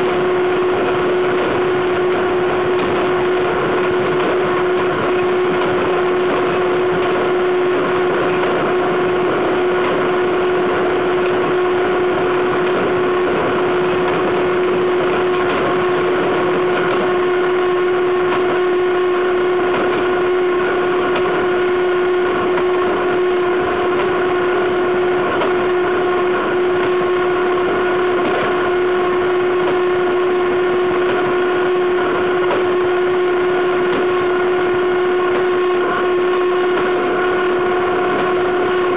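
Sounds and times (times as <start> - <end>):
steady whining tone: 0.0 - 38.9.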